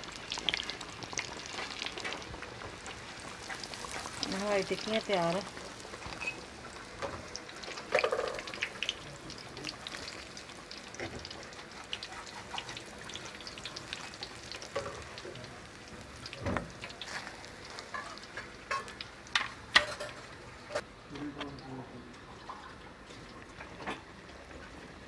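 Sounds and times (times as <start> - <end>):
oil sizzling in a wok: 0.0 - 20.8.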